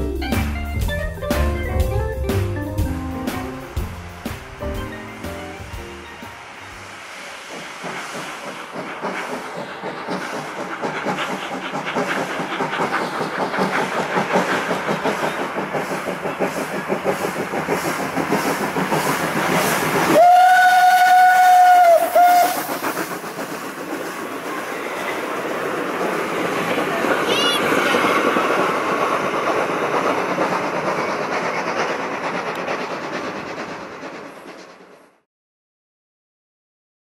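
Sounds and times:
train wheels clicking over rail joints: 0.0 - 35.2
train whistle: 20.1 - 22.7.

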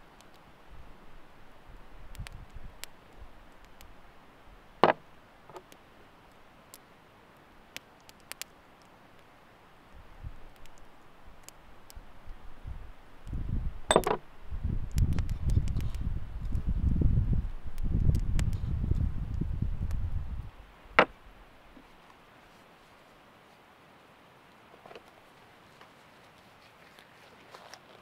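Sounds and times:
light ticks: 0.2 - 0.5, 2.1 - 3.9, 5.6 - 6.9, 7.7 - 9.3, 10.5 - 12.4, 14.8 - 16.6, 17.8 - 20.0
wind rumble on microphone: 0.7 - 3.4, 10.0 - 10.7, 12.0 - 20.7.

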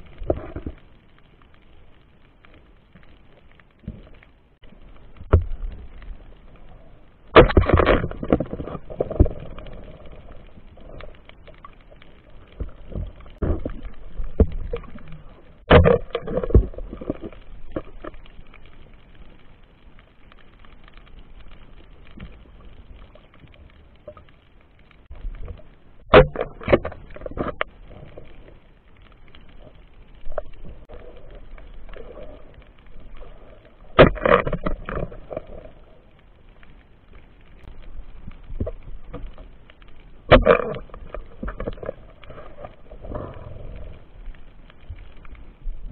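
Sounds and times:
low underwater wash: 0.0 - 45.9
muffled underwater knocks and clicks: 5.0 - 6.2, 7.3 - 18.8, 25.0 - 28.2, 33.9 - 35.8, 40.2 - 43.8.

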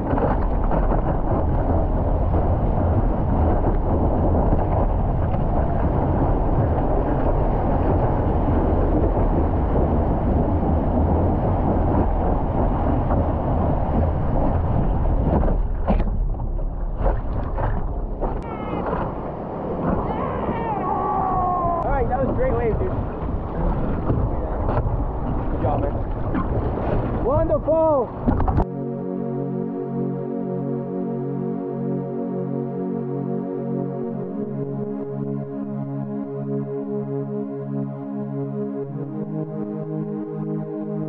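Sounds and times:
wind buffeting microphone: 0.0 - 28.8.

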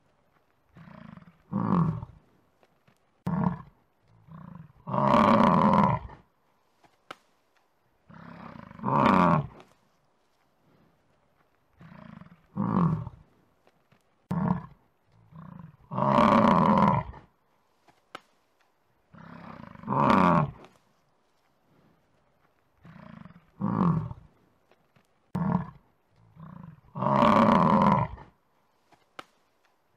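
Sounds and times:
bison grunting: 0.7 - 2.2, 3.2 - 6.2, 8.1 - 9.6, 11.8 - 13.2, 14.3 - 17.3, 19.1 - 20.6, 22.8 - 24.3, 25.3 - 28.3.

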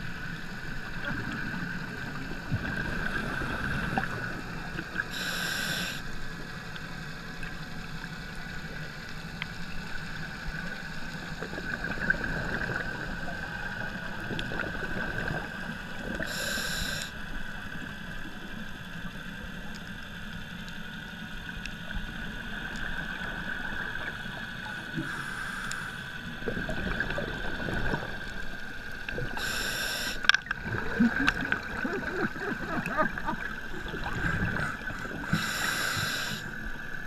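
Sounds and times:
regulator hiss: 5.0 - 6.2, 16.0 - 17.4, 24.9 - 26.4, 29.2 - 30.4, 35.2 - 36.9.

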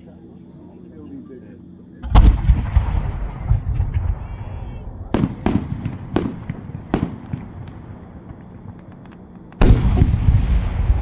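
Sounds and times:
firework shells exploding: 2.0 - 11.0
heavy boom with rolling echo: 2.0 - 11.0
faint firework pops: 5.1 - 11.0.

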